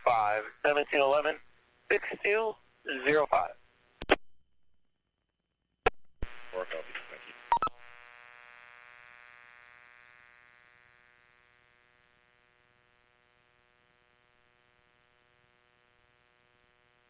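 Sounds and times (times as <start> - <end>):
radio scanner burst: 0.0 - 3.5, 6.2 - 7.7
electrical buzz with hiss: 0.0 - 4.0, 6.2 - 17.0.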